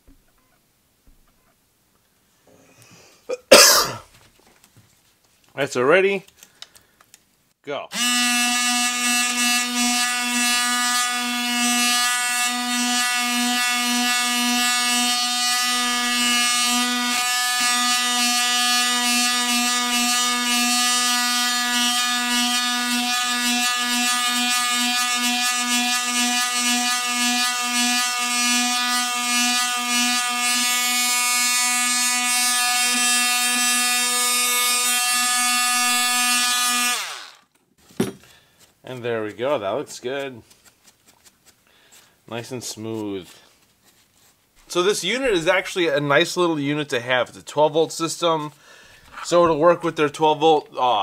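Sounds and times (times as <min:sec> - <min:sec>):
detail sander buzzing on wood: 0:08.0 - 0:37.4.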